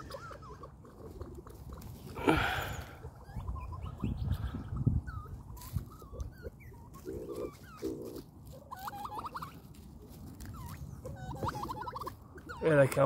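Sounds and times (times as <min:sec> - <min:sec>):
pheasant rattling calls: 0:00.0 - 0:09.8.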